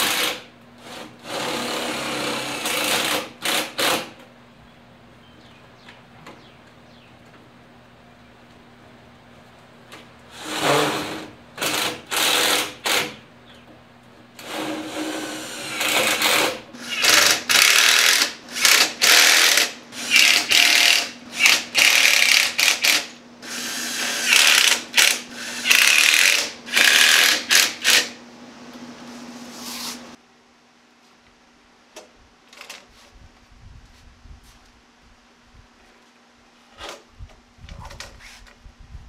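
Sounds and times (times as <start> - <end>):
cordless drill whirring: 14.4 - 28.2.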